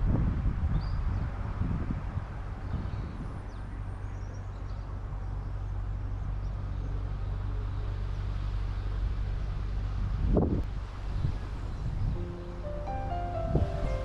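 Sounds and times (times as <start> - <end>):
boat engine droning: 3.8 - 14.0.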